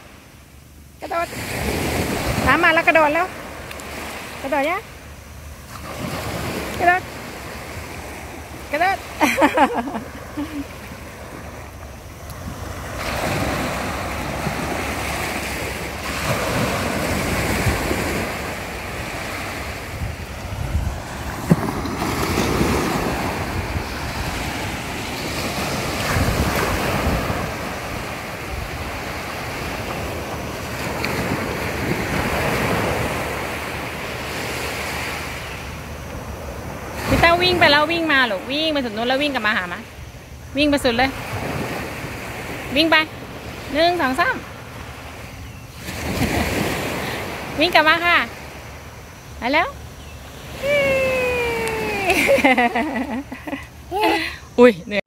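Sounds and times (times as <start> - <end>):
small waves breaking on sand: 0.0 - 55.0
wind buffeting microphone: 19.6 - 33.3.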